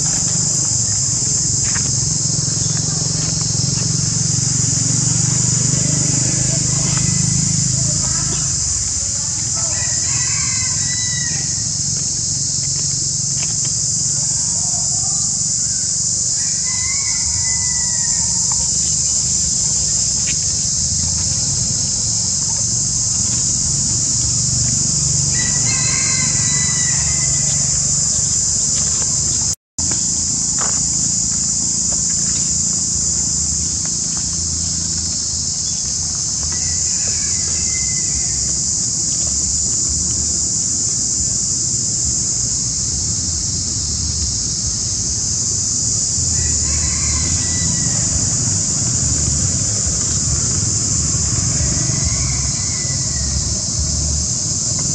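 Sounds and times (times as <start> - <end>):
shrill insect chorus: 0.0 - 54.9
rooster crowing: 4.2 - 11.8, 16.4 - 18.9, 23.8 - 28.4, 36.6 - 38.6, 46.3 - 53.6.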